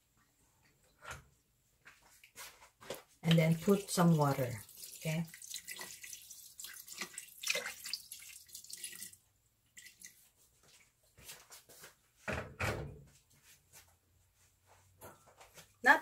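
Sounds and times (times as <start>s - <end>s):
water pouring into metal pot: 3.3s - 10.2s.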